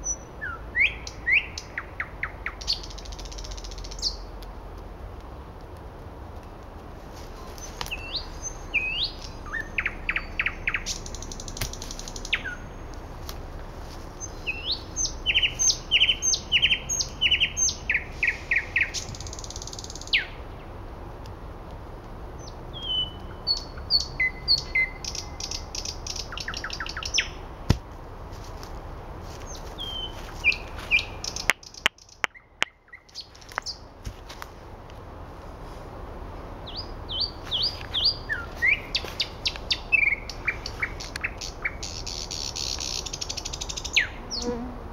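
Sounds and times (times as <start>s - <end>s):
nightingale singing: 0.0s - 4.4s, 7.5s - 13.3s, 14.0s - 20.7s, 22.4s - 27.8s, 29.4s - 33.9s, 36.6s - 44.6s.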